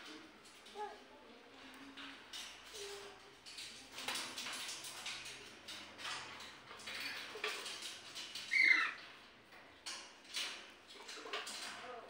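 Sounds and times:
parakeet squawk: 8.5s - 9.0s.

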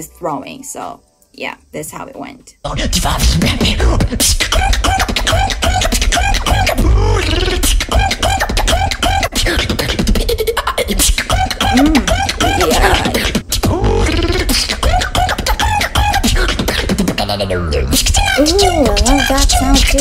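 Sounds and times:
person beatboxing: 2.9s - 20.0s
vocal tone: 3.4s - 16.6s, 17.2s - 20.0s.

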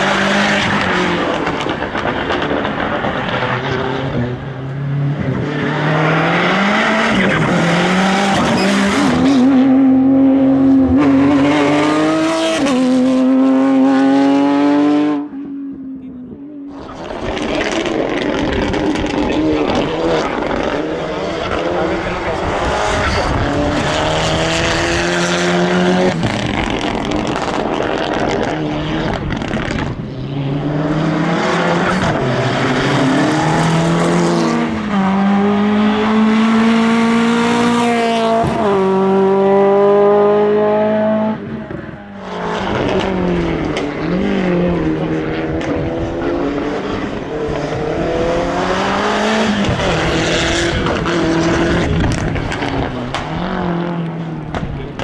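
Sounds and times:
race car engine revving: 0.0s - 55.0s.

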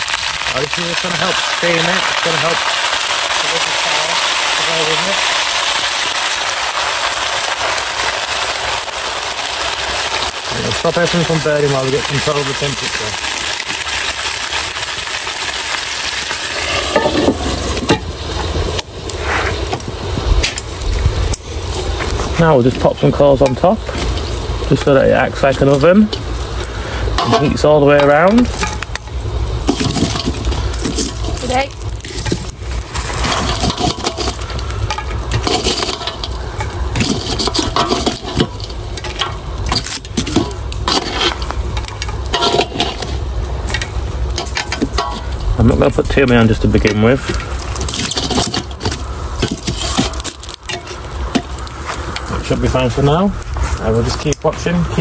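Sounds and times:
water sizzling in a hot pot: 0.0s - 55.0s
steady low rumble: 16.3s - 55.0s
embers knocking on iron lid: 16.6s - 18.9s, 22.0s - 45.9s, 46.6s - 52.5s
metal tongs clinking and scraping: 27.2s - 45.5s, 46.8s - 52.5s.

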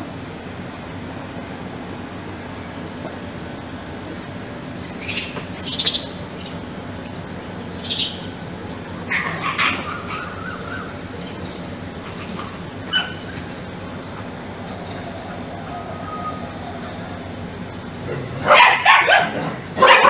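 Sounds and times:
background hiss: 0.0s - 9.1s
low hum: 0.0s - 18.6s
shrill animal calls and squeal: 4.8s - 11.2s, 12.1s - 17.8s.

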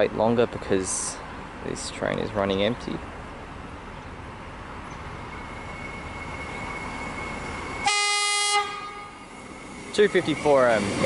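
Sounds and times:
electric train whine: 3.4s - 11.0s
train horn blast: 7.8s - 9.3s.

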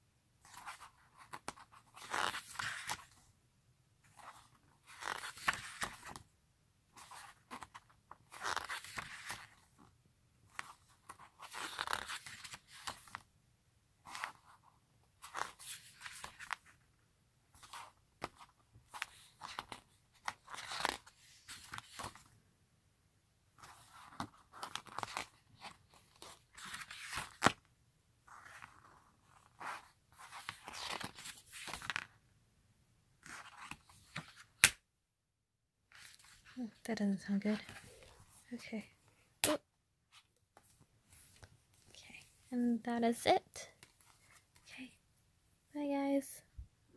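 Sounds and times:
pages turning: 0.4s - 3.2s, 4.1s - 6.2s, 7.0s - 9.7s, 10.5s - 13.2s, 15.2s - 16.8s, 17.6s - 22.3s, 23.6s - 27.6s, 28.3s - 32.1s, 33.2s - 34.8s, 35.9s - 36.6s.

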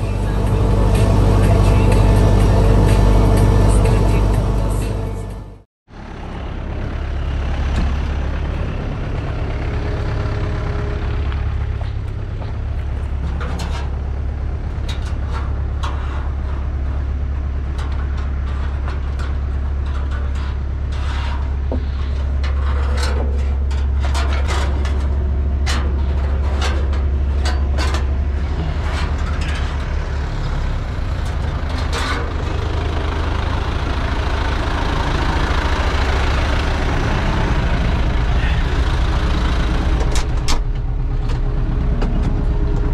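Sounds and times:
tractor diesel engine running: 0.0s - 42.9s.

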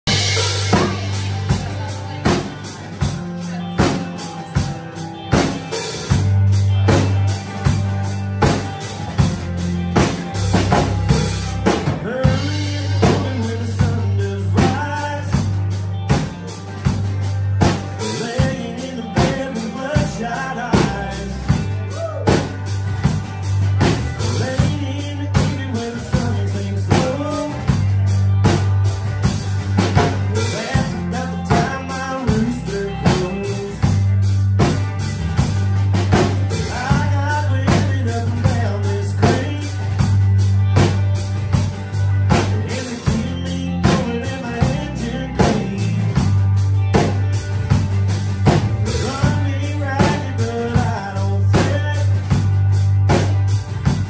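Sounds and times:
drum kit beat: 0.0s - 54.0s
electric and acoustic guitars: 0.0s - 54.0s
electric bass: 0.0s - 54.0s
man singing: 11.6s - 16.5s, 17.6s - 22.6s, 24.2s - 28.0s, 30.0s - 34.2s, 36.4s - 40.1s, 42.3s - 46.4s, 48.8s - 52.5s.

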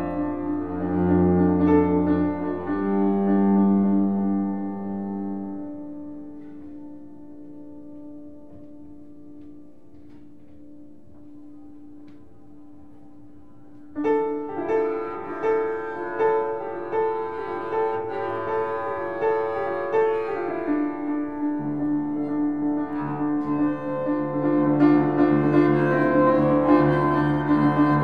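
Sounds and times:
piano repeated chords: 0.0s - 28.0s
bowed double bass: 14.9s - 28.0s.

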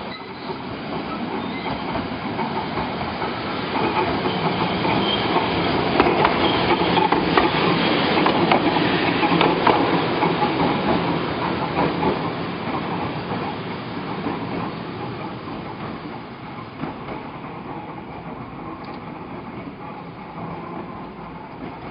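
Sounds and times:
wheels clacking over rail joints: 0.0s - 21.9s.

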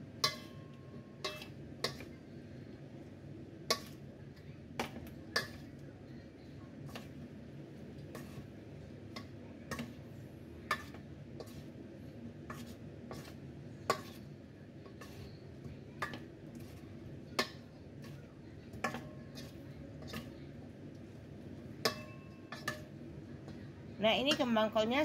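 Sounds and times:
low steady hum: 0.0s - 25.0s
spoon clinking on steel bowl: 0.2s - 2.1s, 21.8s - 22.9s.

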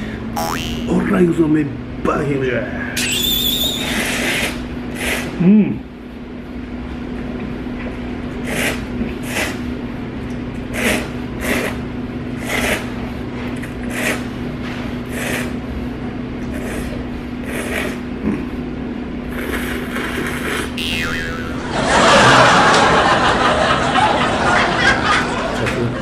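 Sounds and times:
person slurping noodles: 10.7s - 11.8s, 12.4s - 13.0s, 13.8s - 14.3s, 15.1s - 15.5s.

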